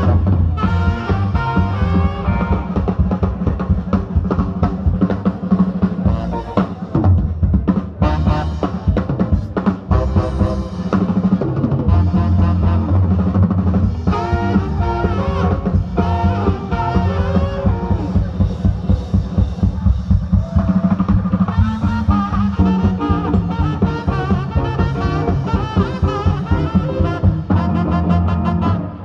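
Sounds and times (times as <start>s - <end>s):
saxophone melody: 0.0s - 3.0s, 6.0s - 6.8s, 8.0s - 9.0s, 9.9s - 11.2s, 11.9s - 18.4s, 21.4s - 29.0s
drum kit: 0.0s - 29.0s
electric guitar: 0.0s - 29.0s
upright bass: 0.0s - 29.0s.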